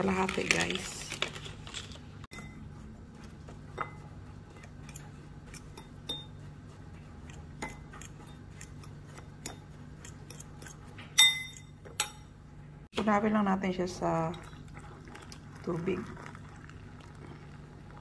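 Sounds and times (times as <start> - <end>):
utensil clinking against a container: 4.6 - 6.4.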